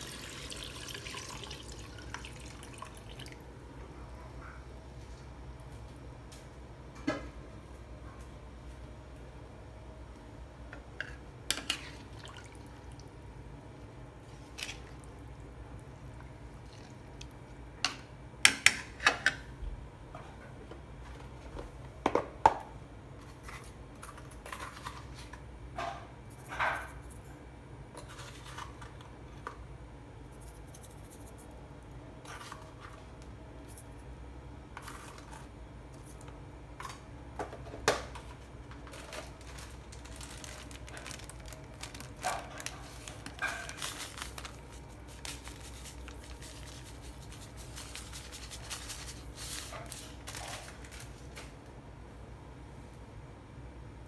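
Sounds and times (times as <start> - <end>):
broth bubbling in a pan: 0.0 - 3.6.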